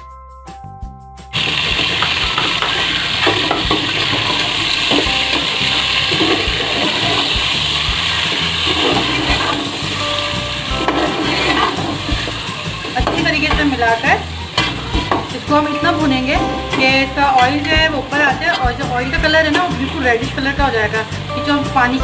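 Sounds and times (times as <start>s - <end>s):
chicken sizzling in hot oil: 1.3s - 22.0s
steel spoon scraping a pot: 8.1s - 10.0s, 10.8s - 13.2s, 14.4s - 15.2s.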